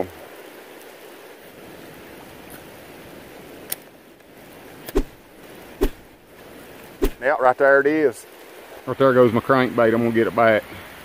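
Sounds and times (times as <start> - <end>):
rain falling on river: 0.0 - 11.0.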